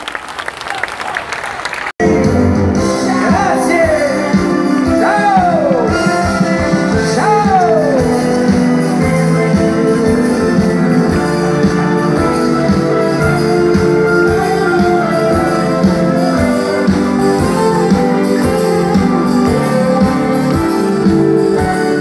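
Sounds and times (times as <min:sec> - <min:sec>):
live pop band playing: 0:02.0 - 0:22.0.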